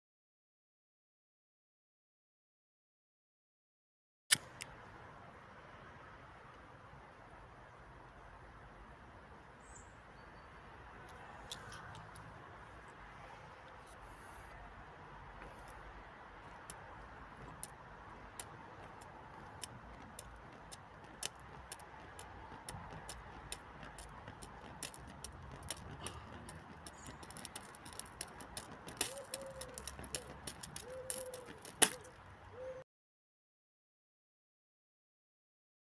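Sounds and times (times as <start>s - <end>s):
plastic burning crackling and popping: 15.4s - 32.2s.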